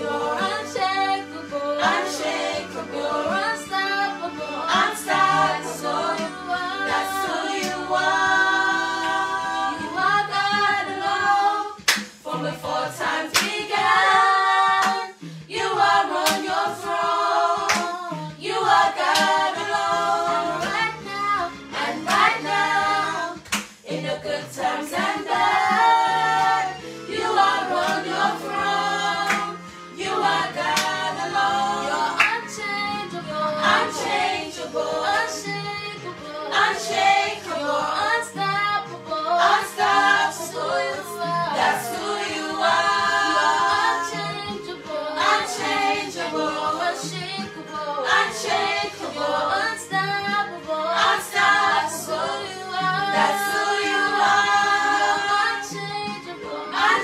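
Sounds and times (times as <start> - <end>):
group singing worship song: 0.0 - 57.0
hand claps: 7.6 - 7.8, 11.8 - 12.2, 13.3 - 13.8, 14.8 - 15.1, 16.2 - 16.5, 17.6 - 18.1, 19.0 - 19.5, 20.6 - 20.9, 22.1 - 22.4, 23.4 - 23.8, 27.8 - 28.1, 29.2 - 29.6, 30.7 - 31.1, 32.2 - 32.5.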